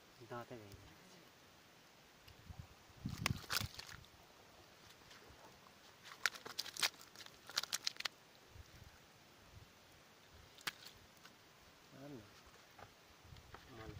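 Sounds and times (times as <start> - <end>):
fish slapping in wet net: 3.1 - 4.1, 6.0 - 8.1, 10.6 - 10.9.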